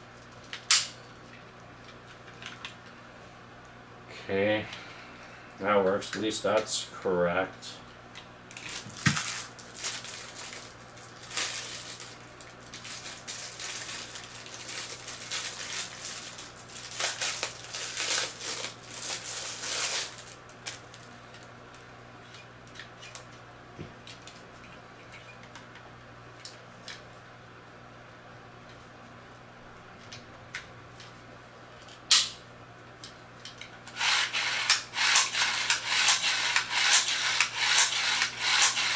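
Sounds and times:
plastic bag crinkling: 8.5 - 21.5.

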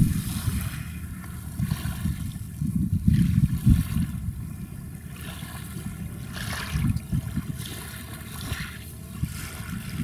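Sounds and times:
low rumble: 0.0 - 3.1
small waves lapping: 0.0 - 10.0.

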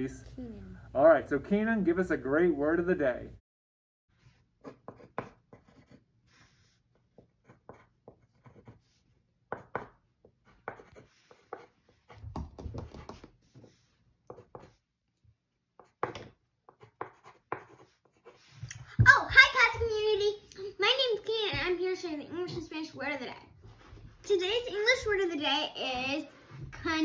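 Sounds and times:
pen scratching on paper: 4.2 - 12.2, 12.8 - 14.8, 15.8 - 18.7.

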